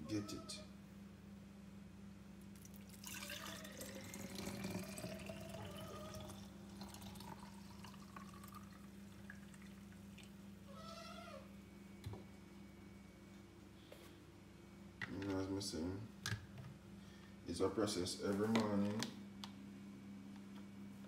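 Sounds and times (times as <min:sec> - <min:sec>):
milk trickling into plastic bottle: 0:02.6 - 0:10.3.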